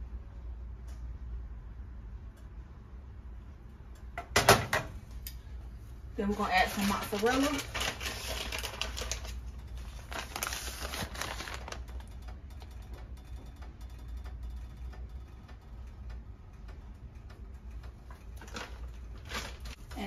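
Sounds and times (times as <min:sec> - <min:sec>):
low steady hum: 0:00.0 - 0:20.0
cheese sprinkling from a plastic bag: 0:06.6 - 0:11.9.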